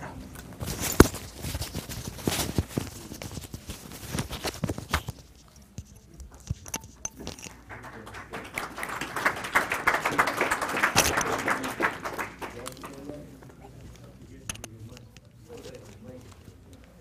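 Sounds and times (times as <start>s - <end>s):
footsteps: 0.0s - 7.7s
audience applause: 7.6s - 13.2s.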